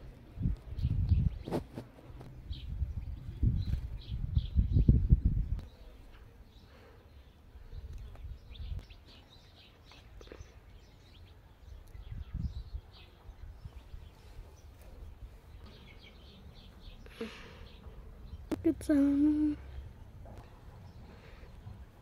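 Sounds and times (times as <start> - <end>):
low rumbles on microphone: 0.0 - 5.7
small birds chirping: 0.0 - 22.0.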